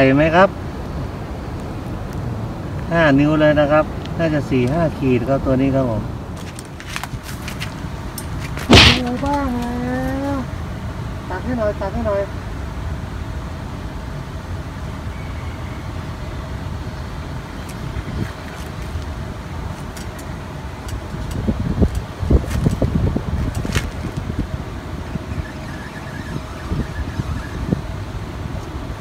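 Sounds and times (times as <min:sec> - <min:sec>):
microphone handling knocks and rustles: 0:08.4 - 0:09.5
wind rumble on microphone: 0:14.2 - 0:29.0.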